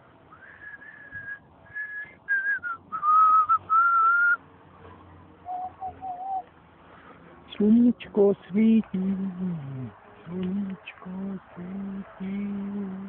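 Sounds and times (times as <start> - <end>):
person whistling a tune: 0.4 - 4.4, 5.5 - 6.5.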